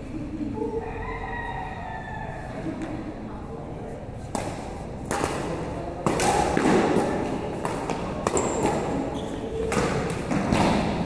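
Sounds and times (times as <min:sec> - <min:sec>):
rackets hitting shuttlecock: 0:04.2 - 0:11.0
shoe squeak: 0:08.4 - 0:09.7.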